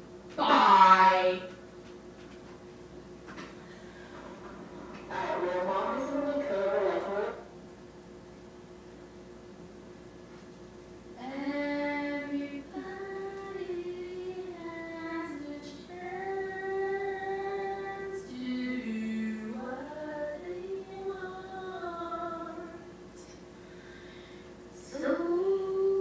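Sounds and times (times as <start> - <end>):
high voice singing wordless notes: 11.2 - 22.8.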